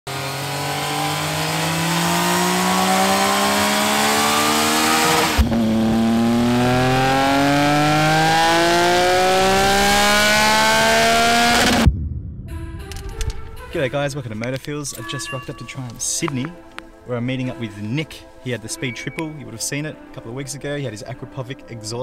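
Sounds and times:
motorcycle engine revving on a dyno: 0:00.1 - 0:11.8.

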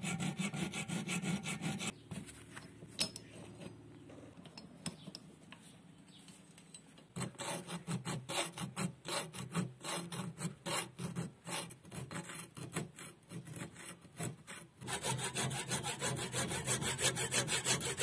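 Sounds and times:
hand file rasping on metal: 0:00.0 - 0:01.9, 0:07.2 - 0:18.0.

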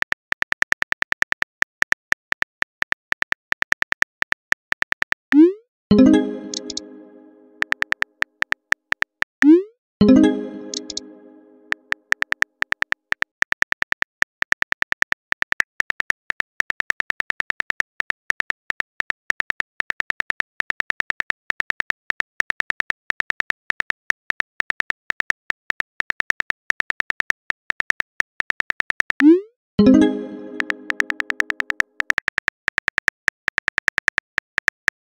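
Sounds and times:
keyboard typing clicks: 0:05.4 - 0:13.2, 0:27.3 - 0:35.0.

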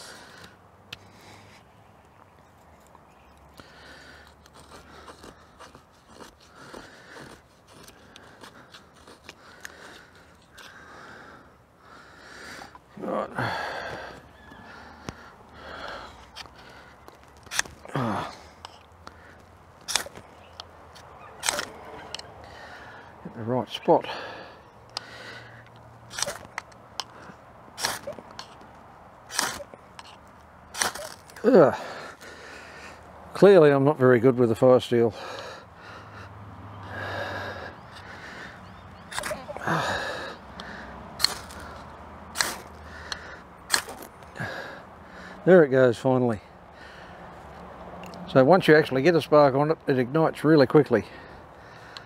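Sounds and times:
knife scraping wood: 0:04.2 - 0:10.8, 0:19.8 - 0:20.2, 0:21.4 - 0:22.2, 0:26.1 - 0:27.2, 0:27.8 - 0:28.6, 0:29.3 - 0:31.4, 0:39.1 - 0:39.5, 0:41.2 - 0:44.1.

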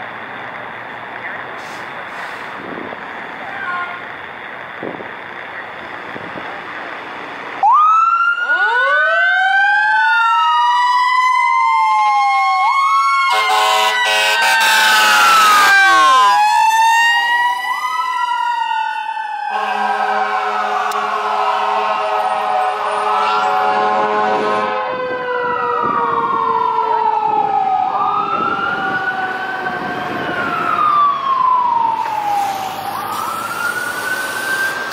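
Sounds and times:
electronic siren wailing: 0:07.6 - 0:34.9
air horn blast: 0:13.3 - 0:15.2, 0:19.5 - 0:24.8
long steady horn tone: 0:13.3 - 0:16.2, 0:19.5 - 0:25.0.

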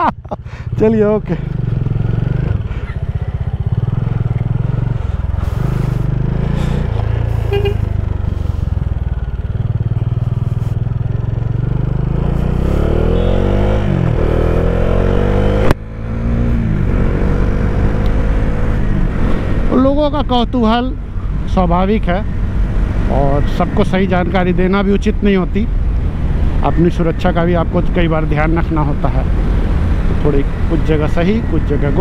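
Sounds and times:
motorcycle engine accelerating: 0:00.0 - 0:25.0.

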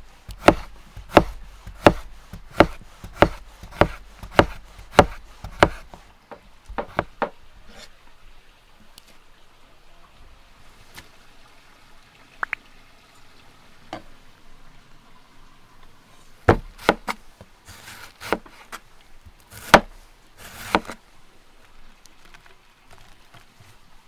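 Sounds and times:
sharp knocks on wood: 0:00.4 - 0:07.4, 0:16.5 - 0:17.1
short scraping: 0:16.7 - 0:18.8.

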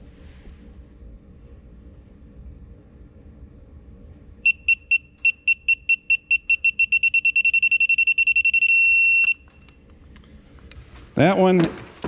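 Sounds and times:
torque wrench beeping: 0:04.4 - 0:09.8.

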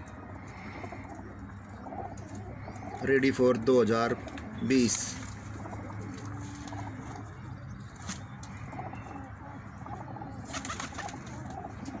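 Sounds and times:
pigeons cooing: 0:00.0 - 0:12.0
wing flutter: 0:10.4 - 0:11.6.

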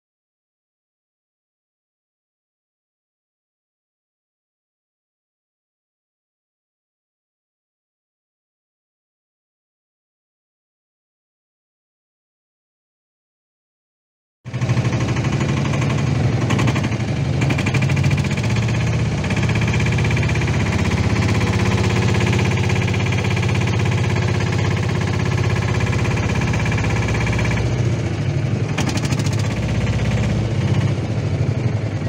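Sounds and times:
small boat engine thudding: 0:14.5 - 0:32.0.

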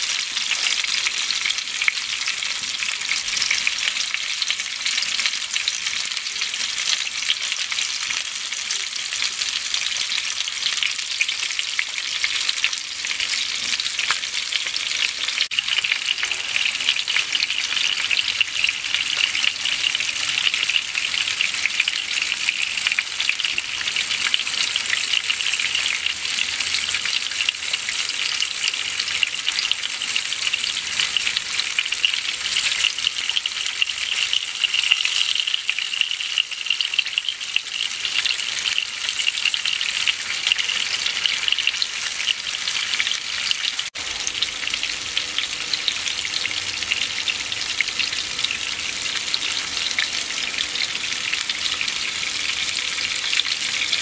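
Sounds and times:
fish sizzling in hot oil: 0:00.0 - 0:54.0.

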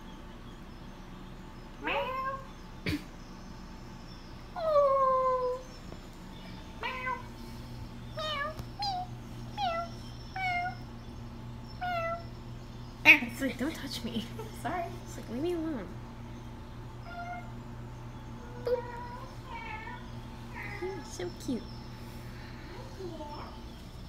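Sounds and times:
cat meowing: 0:01.8 - 0:02.5, 0:06.8 - 0:07.3, 0:11.8 - 0:12.3.

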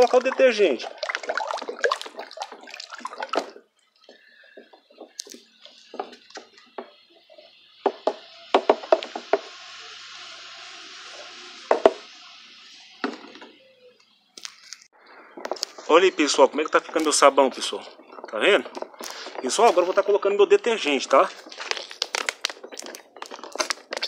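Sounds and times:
liquid sloshing in basin: 0:00.0 - 0:04.0.

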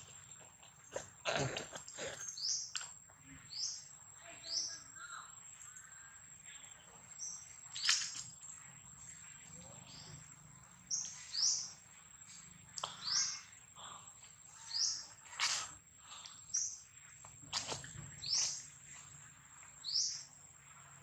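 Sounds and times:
short high chirping calls: 0:07.7 - 0:08.2.

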